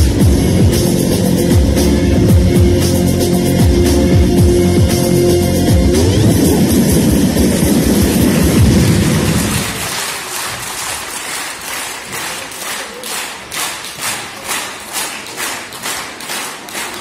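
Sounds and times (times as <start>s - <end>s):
dance music: 0.0s - 10.2s
audience clapping in unison: 8.2s - 17.0s.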